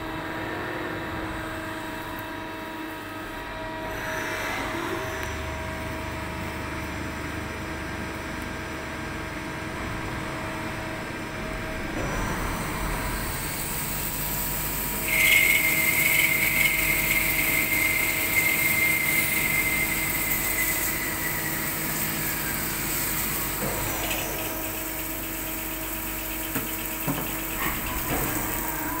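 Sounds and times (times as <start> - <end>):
lathe machine hum: 5.4 - 27.9
cutting tool squealing: 15.0 - 22.7.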